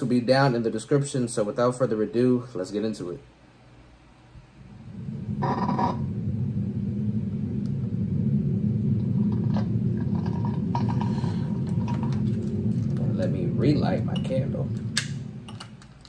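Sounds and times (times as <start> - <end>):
low rumbling drone: 4.4 - 16.0.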